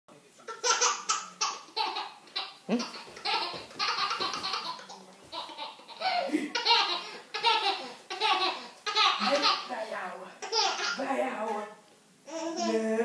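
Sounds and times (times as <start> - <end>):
toddler laughing: 0.5 - 9.7, 10.4 - 11.0, 12.3 - 12.8.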